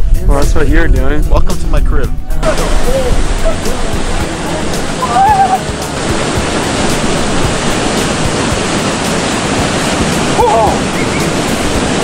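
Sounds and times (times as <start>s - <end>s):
waterfall rushing: 2.3s - 12.0s.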